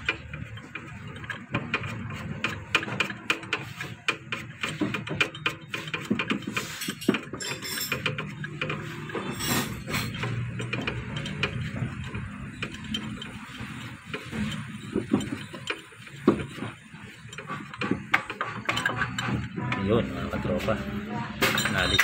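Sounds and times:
hand tools clinking against metal: 4.4 - 20.8, 21.4 - 22.0.

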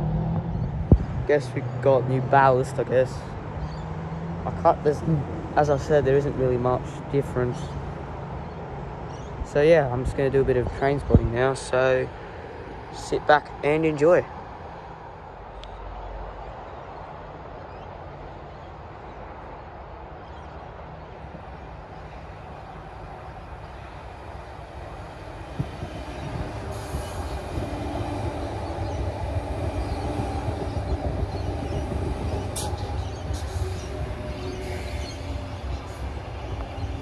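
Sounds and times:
train rumbling past: 0.0 - 17.8, 18.4 - 37.0
train whine: 21.4 - 37.0.

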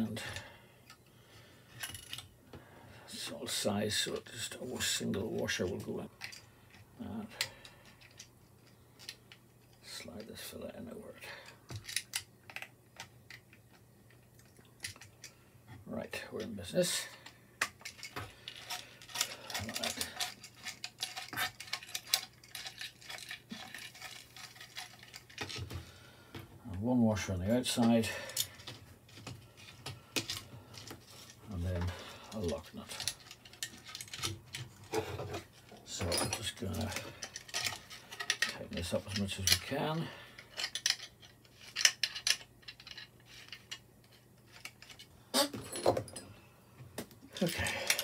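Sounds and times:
plastic parts clicking and clattering: 1.7 - 2.3, 4.8 - 9.8, 11.5 - 15.4, 17.2 - 26.4, 27.6 - 46.2, 47.0 - 48.0.

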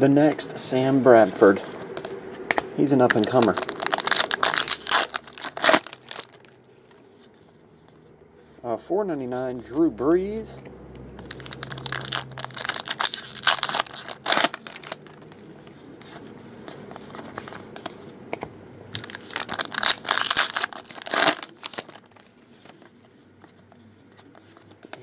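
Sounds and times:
foil wrapper crinkling and tearing: 3.1 - 6.6, 11.2 - 15.2, 19.0 - 22.4.

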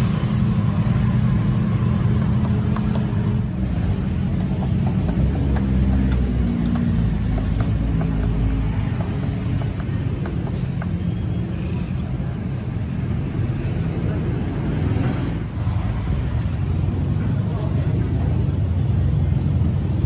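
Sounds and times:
wooden stick tapping spiky husk: 2.1 - 3.4, 4.4 - 11.3.

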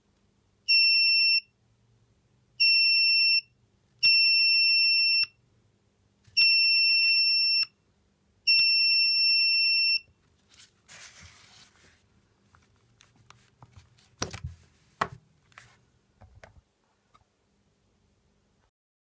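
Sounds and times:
rustling: 10.2 - 15.9.

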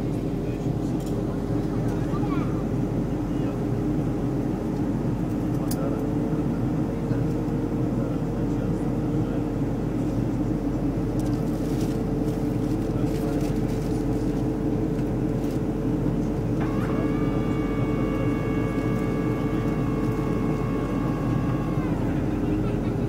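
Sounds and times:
airliner cabin engine roar: 0.0 - 23.0
high steady whine: 10.8 - 23.0.

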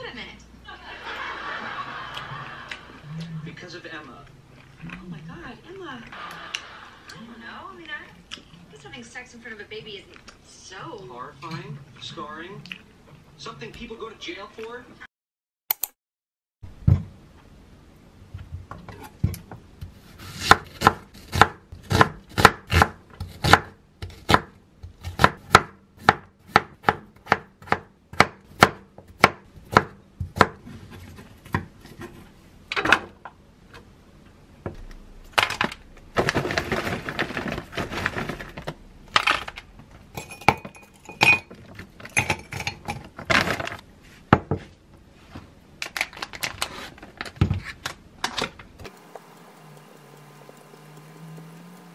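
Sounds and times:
knife chopping on wooden board: 20.2 - 32.1.

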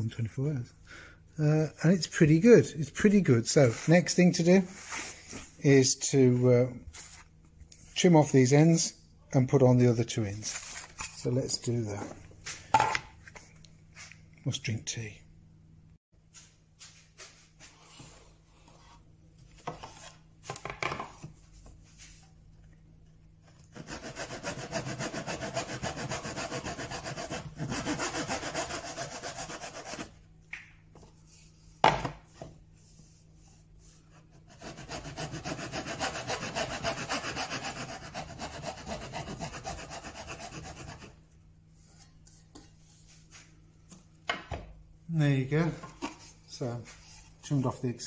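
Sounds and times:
hand saw cutting wood: 23.7 - 30.1, 34.5 - 41.1.

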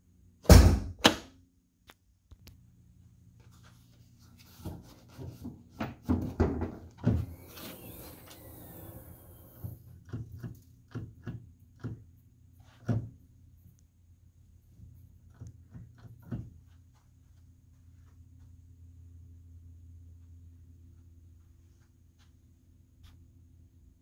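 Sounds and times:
brief hiss: 7.3 - 9.7.

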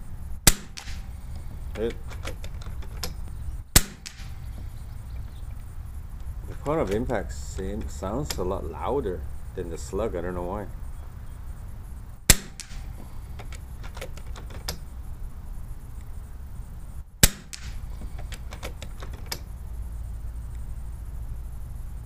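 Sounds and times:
air rifle shots: 0.4 - 9.6, 12.2 - 15.1, 17.1 - 19.6
light clicks: 0.7 - 8.6, 17.2 - 19.6.

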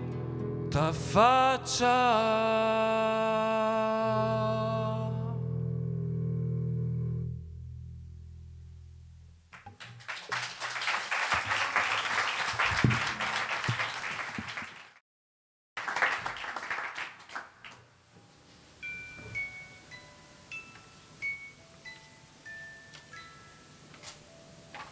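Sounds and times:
acoustic guitar: 0.0 - 7.3
audience applauding: 9.6 - 15.0, 15.8 - 17.9
high chime-like notes: 18.8 - 23.8.

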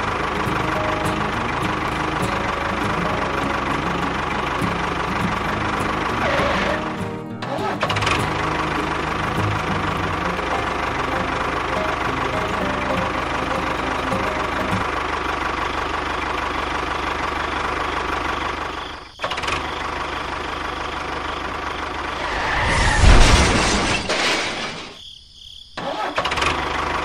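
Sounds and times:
small engine running: 0.0 - 22.4.

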